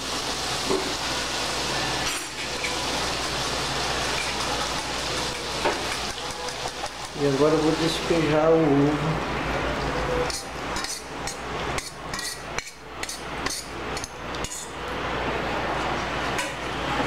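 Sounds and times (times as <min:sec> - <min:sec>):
eggs sizzling in butter: 0:00.0 - 0:08.1.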